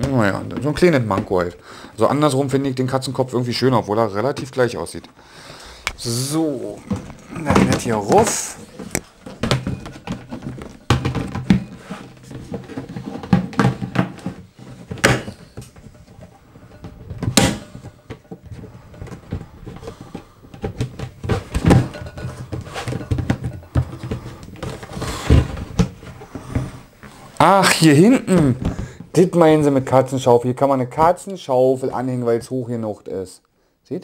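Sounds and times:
plastic knocks and rattles: 6.6s - 27.2s, 28.3s - 29.9s.

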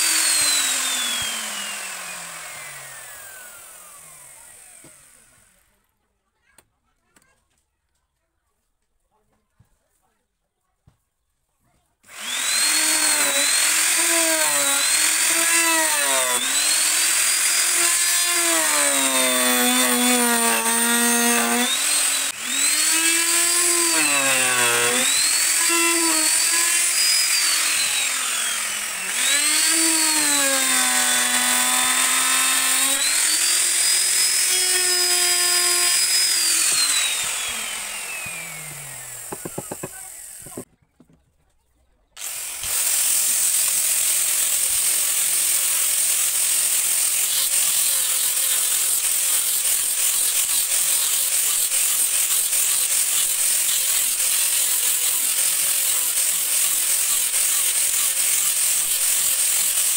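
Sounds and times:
electric router cutting wood: 0.0s - 5.6s, 12.1s - 40.7s, 42.2s - 59.9s.

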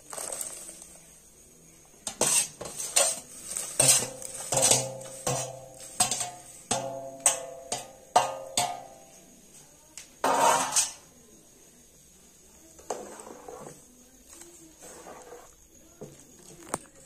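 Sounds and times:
metal plate clanking on pot rim: 2.1s - 9.0s, 10.2s - 11.0s
faint scraping: 12.8s - 15.6s.

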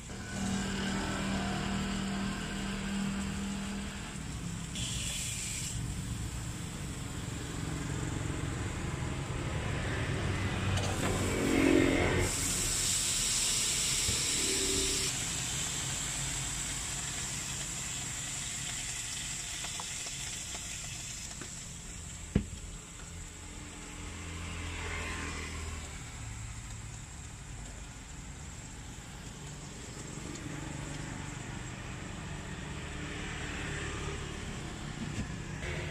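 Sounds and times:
road traffic hum: 0.0s - 16.6s, 22.3s - 35.9s
vehicle passing loudly: 7.3s - 12.7s, 23.9s - 26.5s, 30.5s - 35.9s.

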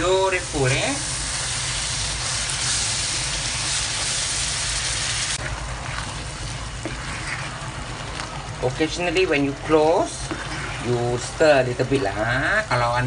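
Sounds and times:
spatula stirring in a wok: 0.0s - 12.8s
sauce sizzling and bubbling: 0.0s - 13.0s.

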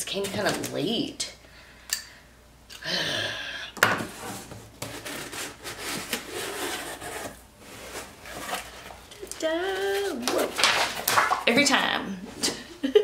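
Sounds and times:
cardboard scraping and rustling: 4.0s - 9.1s, 9.7s - 11.5s.

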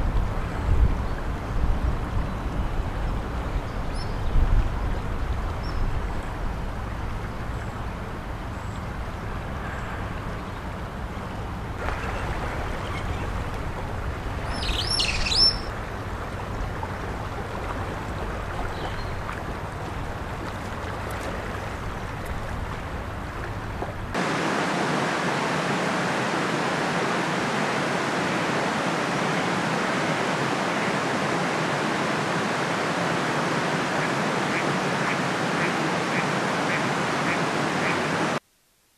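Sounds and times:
floodwater rushing: 1.2s - 38.4s
bird chirping: 14.4s - 15.7s.

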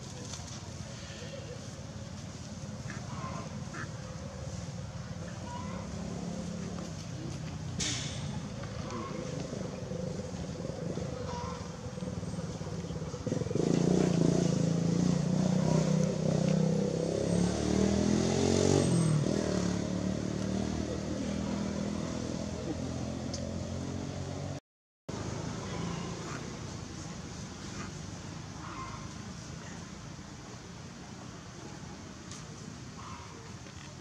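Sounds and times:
vehicle engine passing: 1.0s - 30.2s.

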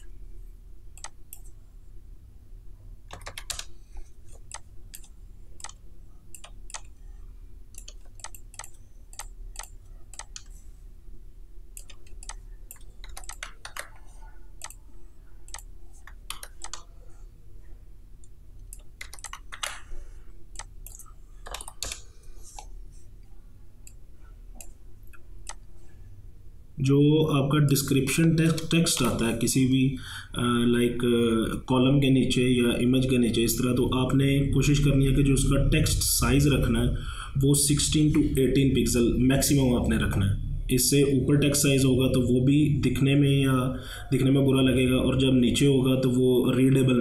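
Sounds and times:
low steady hum: 0.0s - 47.0s
computer mouse clicks: 0.9s - 1.5s, 3.1s - 7.0s, 7.7s - 10.6s, 11.7s - 16.9s, 18.2s - 22.7s, 23.8s - 25.7s
keyboard keystrokes: 3.1s - 3.7s, 11.8s - 14.0s, 18.7s - 19.9s, 20.6s - 22.1s.

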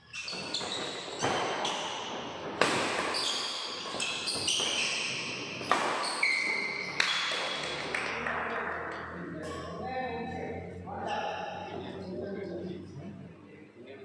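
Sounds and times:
rackets hitting shuttlecock: 0.2s - 9.7s.

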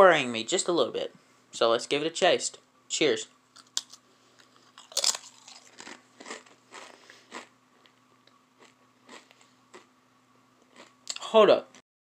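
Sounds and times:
tortilla chip crunching: 3.6s - 8.0s, 8.6s - 9.9s, 10.6s - 11.2s.

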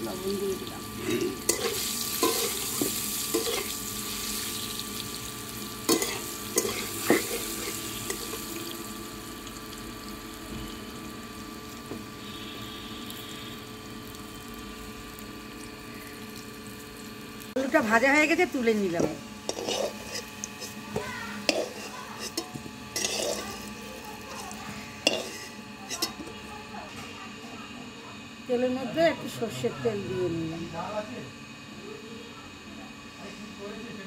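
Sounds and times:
potatoes sizzling in oil: 0.0s - 26.6s
metal spatula scraping pan: 5.9s - 8.4s, 19.4s - 23.7s, 24.4s - 26.3s.

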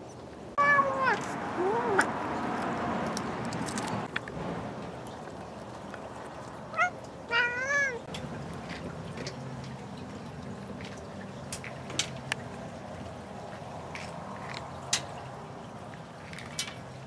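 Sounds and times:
cat meowing: 0.6s - 2.0s, 6.7s - 8.1s.

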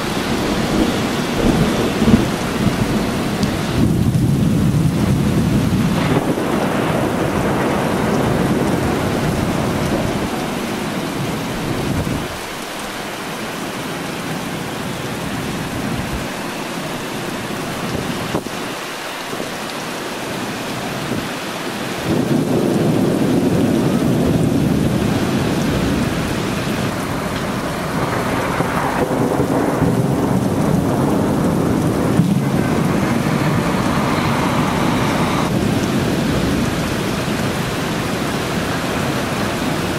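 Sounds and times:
rolling thunder: 0.0s - 13.2s, 21.9s - 39.9s
heavy rain falling: 0.0s - 39.9s.

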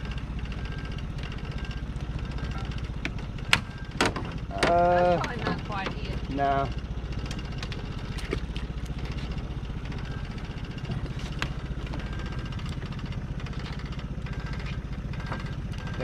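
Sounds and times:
outboard motor idling: 0.0s - 16.0s.

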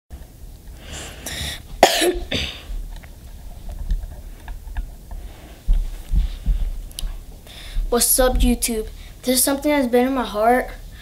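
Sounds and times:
boy coughing and clearing throat: 1.8s - 2.7s.

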